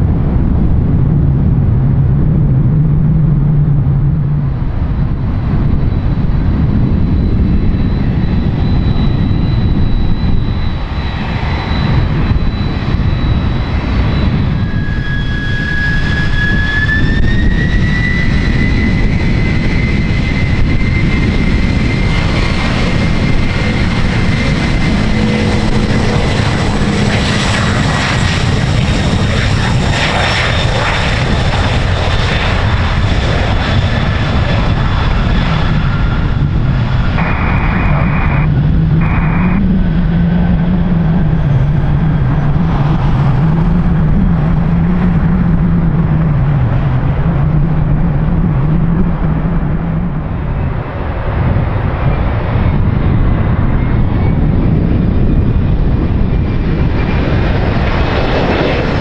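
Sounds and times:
jet engines rumbling: 0:00.0 - 0:59.0
thin high whine: 0:37.1 - 0:40.7.

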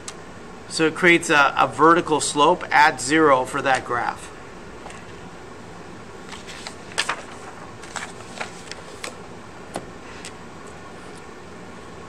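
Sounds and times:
steady background hiss: 0:00.0 - 0:12.0
paper rustling and tapping: 0:06.3 - 0:09.8.

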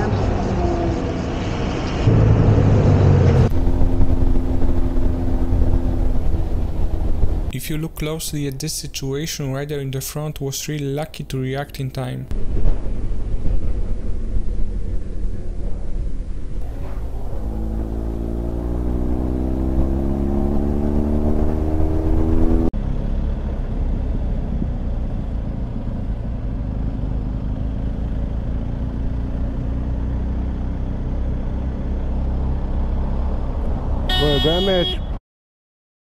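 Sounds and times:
motorcycle engine accelerating: 0:02.0 - 0:07.5, 0:12.3 - 0:34.6.

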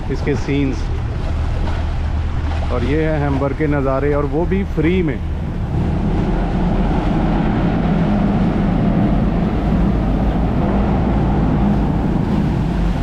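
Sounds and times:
ferry engines deep rumble: 0:00.0 - 0:13.0
propeller wash churning water: 0:00.0 - 0:13.0.

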